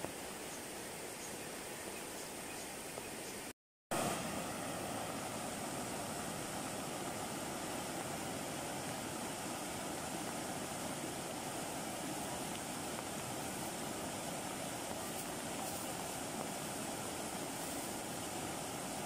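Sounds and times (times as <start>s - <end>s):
floodwater rushing over rocks: 3.9s - 19.0s.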